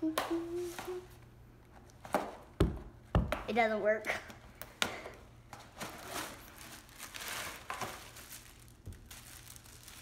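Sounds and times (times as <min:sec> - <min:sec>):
packing paper crinkling: 0:05.8 - 0:10.0.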